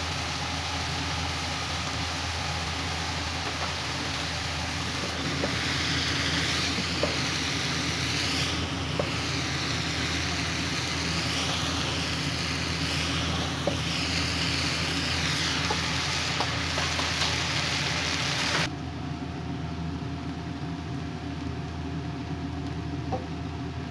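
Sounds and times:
food sizzling in a pan: 0.0s - 18.7s.

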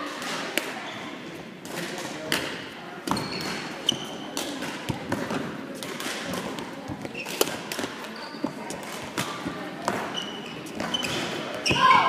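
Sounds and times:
rackets striking shuttlecock: 0.1s - 0.8s, 1.6s - 8.1s, 8.7s - 11.8s
shoes squeaking on floor: 3.0s - 4.4s, 7.0s - 12.0s.

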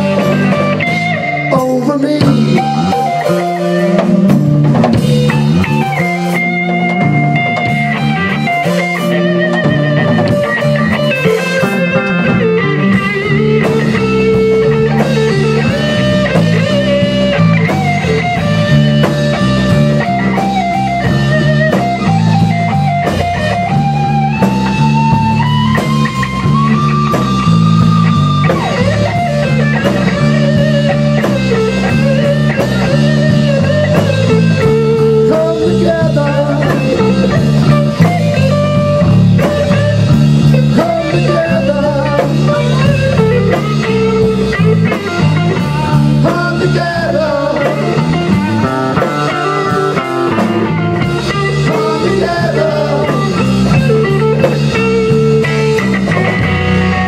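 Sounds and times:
bass guitar: 0.0s - 57.0s
drum kit: 0.0s - 57.0s
electric guitar: 0.0s - 57.0s
men singing: 1.5s - 3.1s, 34.6s - 37.8s, 40.5s - 43.4s, 45.4s - 48.4s, 51.0s - 54.5s.

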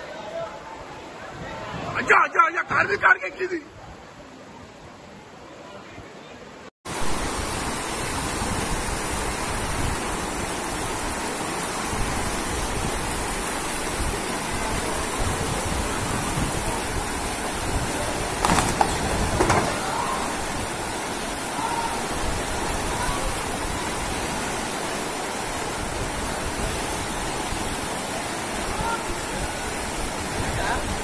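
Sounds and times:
floodwater rushing: 6.9s - 31.0s.

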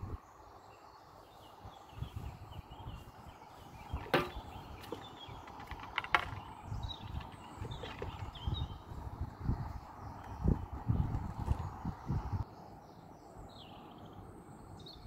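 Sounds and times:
landing net knocks: 4.0s - 4.4s.

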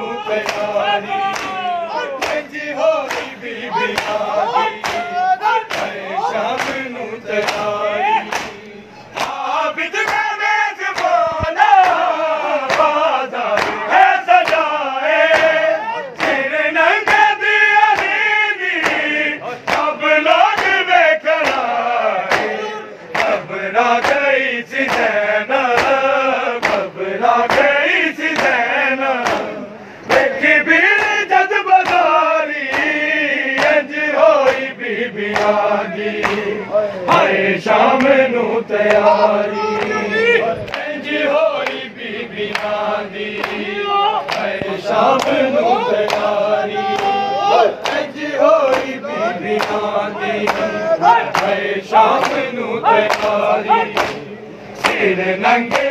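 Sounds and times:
men chanting in unison: 0.0s - 55.9s
hands slapping chests: 0.4s - 0.7s, 1.3s - 1.6s, 2.2s - 3.3s, 3.9s - 5.1s, 5.7s - 6.8s, 8.3s - 10.2s, 11.0s - 12.9s, 13.5s - 13.8s, 14.4s - 14.7s, 18.0s - 18.2s, 21.4s - 21.7s, 23.1s - 23.4s, 24.8s - 25.1s, 26.6s - 26.8s, 29.2s - 29.5s, 31.8s - 33.0s, 35.3s - 35.6s, 36.2s - 36.4s, 46.0s - 46.3s, 49.6s - 49.8s, 51.3s - 51.6s, 53.0s - 54.2s.

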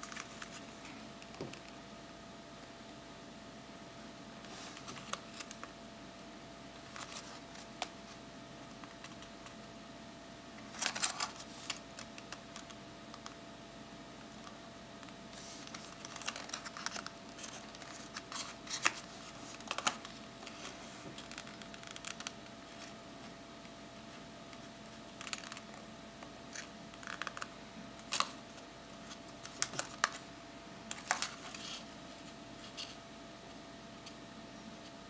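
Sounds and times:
paper rustling and crinkling: 0.0s - 1.0s, 4.5s - 5.7s, 6.8s - 8.2s, 10.7s - 12.8s, 15.3s - 23.4s, 26.5s - 30.2s, 30.9s - 33.0s
faint steady hum: 0.0s - 35.0s.

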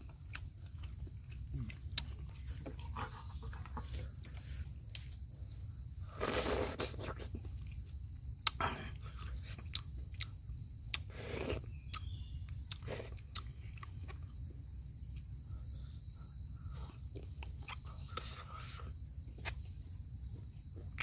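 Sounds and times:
person sipping and chewing: 0.1s - 5.3s, 5.9s - 14.4s, 16.6s - 19.6s.

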